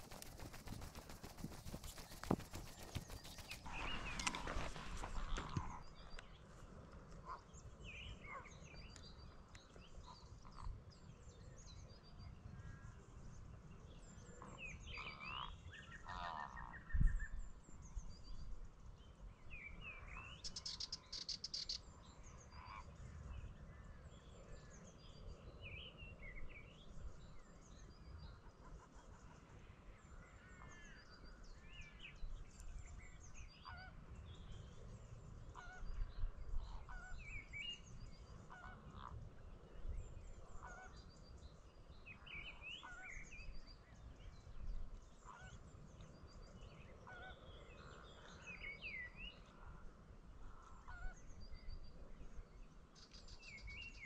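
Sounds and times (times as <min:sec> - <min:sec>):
buzzy rattling bird call: 0:00.0 - 0:04.0
wild birds chirping: 0:00.0 - 0:06.5.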